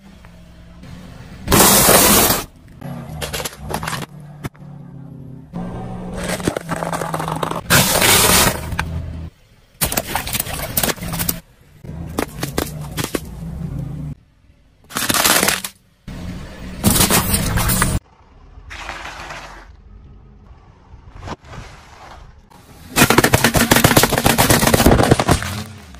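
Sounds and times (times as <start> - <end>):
plastic cracking under tyre: 23.0 - 25.9.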